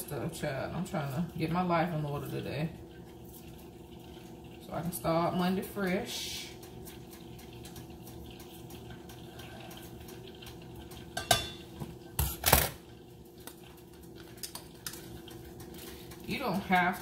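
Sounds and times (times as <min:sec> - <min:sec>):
utensils clattering: 0:06.7 - 0:12.8
metal utensils clinking on glass: 0:11.2 - 0:12.8.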